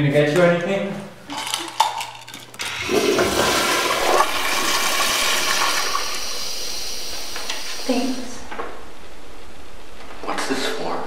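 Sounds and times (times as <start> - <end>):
water refilling: 2.6 - 8.3
toilet flushing: 2.6 - 8.4.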